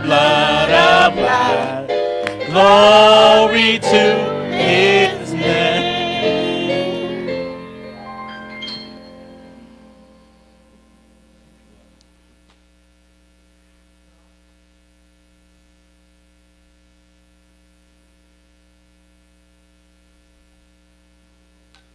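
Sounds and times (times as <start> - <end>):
song: 0.0 - 12.0
electrical mains hum: 0.0 - 21.9.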